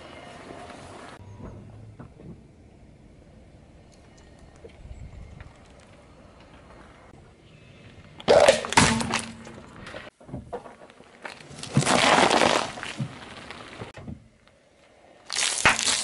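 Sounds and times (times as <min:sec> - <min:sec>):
plastic cup cracking under tyre: 0:11.2 - 0:13.7, 0:15.3 - 0:16.0.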